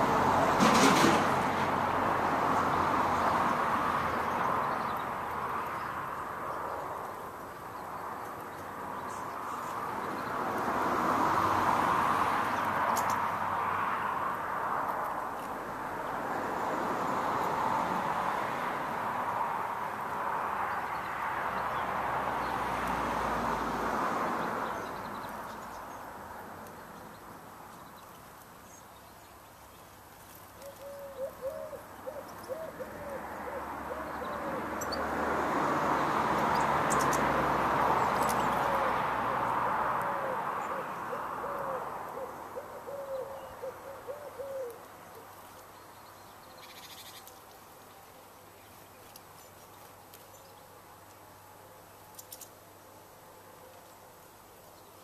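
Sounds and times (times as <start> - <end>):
pigeon cooing: 30.6 - 34.9, 38.3 - 44.9.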